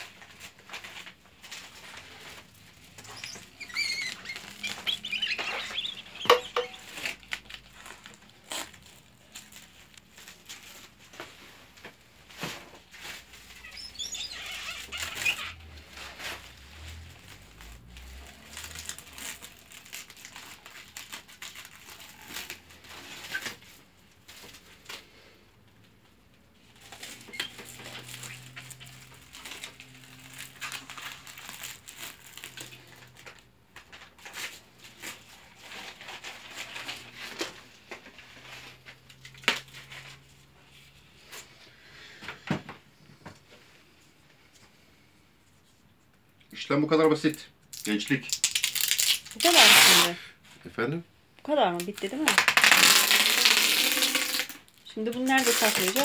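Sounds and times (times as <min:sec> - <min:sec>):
cling film crinkling and rustling: 0:00.0 - 0:46.3, 0:46.9 - 0:50.1, 0:51.5 - 0:56.0
cling film pulled off roll: 0:52.3 - 0:54.7.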